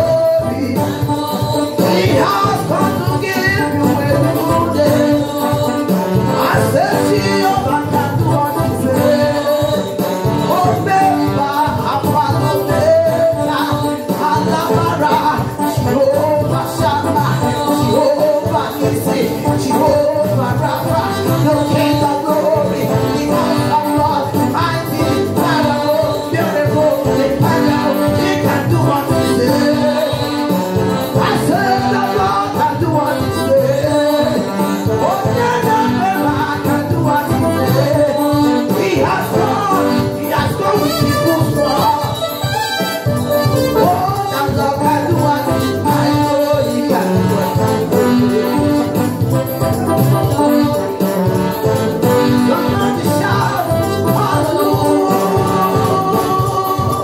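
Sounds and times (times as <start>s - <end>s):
band with steady beat: 0.0s - 57.0s
keyboard chords: 0.0s - 57.0s.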